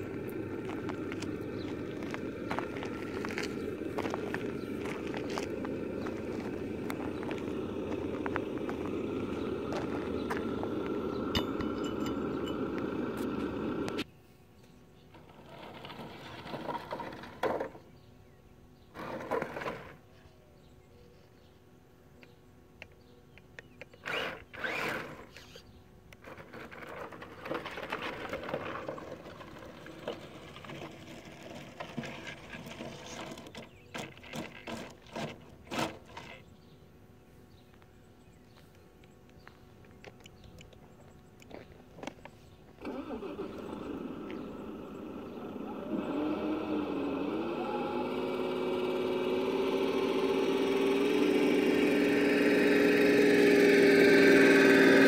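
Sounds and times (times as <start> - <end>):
crunching and scraping on gravel: 0.0 - 14.1, 15.1 - 18.0, 18.8 - 20.3, 26.2 - 36.6, 37.6 - 47.3
engine-like drone: 0.0 - 21.1, 22.2 - 55.0.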